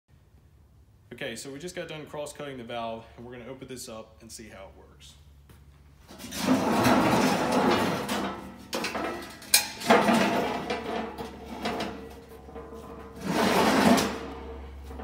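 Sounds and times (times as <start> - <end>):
metal clanks: 6.1 - 15.0
metal scraping and grinding: 6.1 - 15.0.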